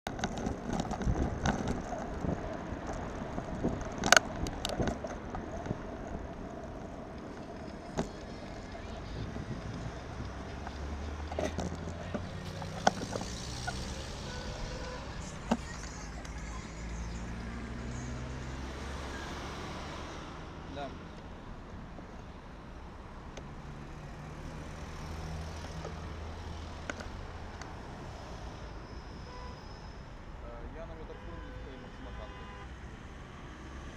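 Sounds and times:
bicycle rumbling over brick paving: 0.1 - 15.8
cars driving past: 0.1 - 30.9, 32.0 - 33.9
wind buffeting microphone: 0.3 - 7.1, 8.9 - 10.6.

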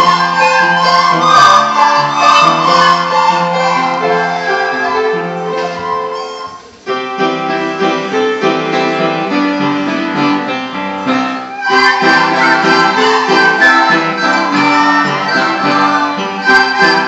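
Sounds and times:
children playing recorders: 0.0 - 6.8, 11.0 - 17.0.

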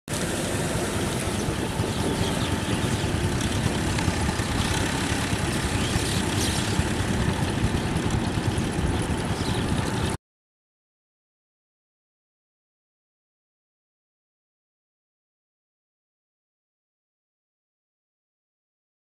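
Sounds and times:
tractor diesel engine running: 0.1 - 10.2.

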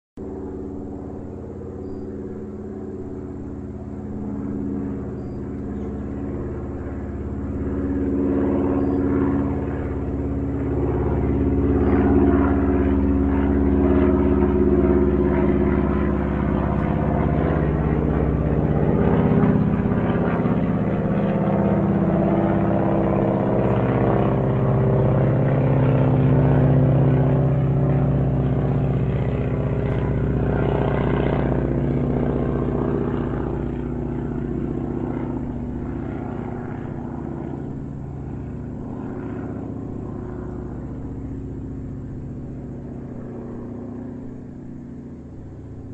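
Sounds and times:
airplane engine drone: 0.2 - 45.9.

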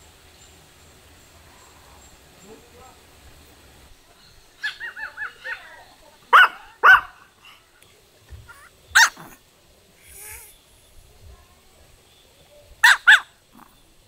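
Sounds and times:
small dog barking and yipping: 4.6 - 7.6, 8.5 - 9.4, 12.8 - 13.8.

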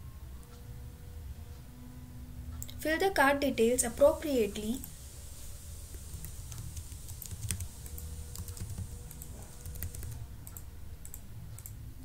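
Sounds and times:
low hum: 0.0 - 12.0
typing on computer keyboard: 6.0 - 11.8.

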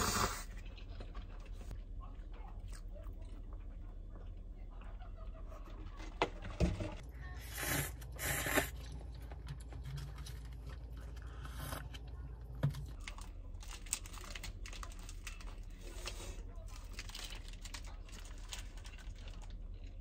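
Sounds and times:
low steady room hum: 0.0 - 20.0.

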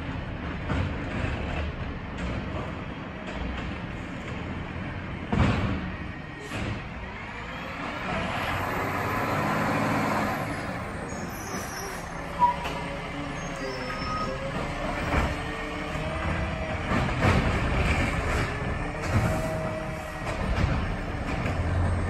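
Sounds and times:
garbage truck engine revving: 4.8 - 22.0.

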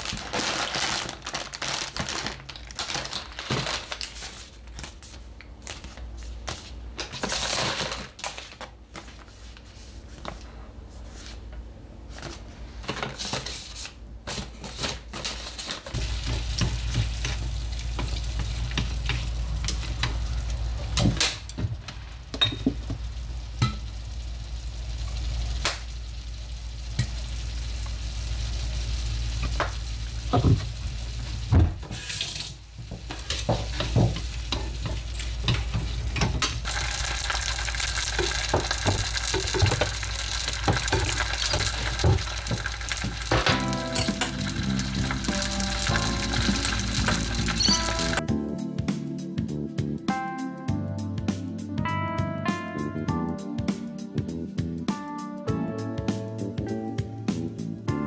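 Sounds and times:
paper rustling and crinkling: 0.0 - 10.4, 12.1 - 16.5
steady low hum: 16.0 - 31.9.

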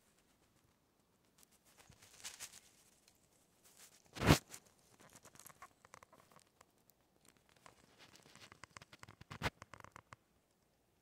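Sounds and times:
chipmunk cracking seeds: 4.2 - 10.8.

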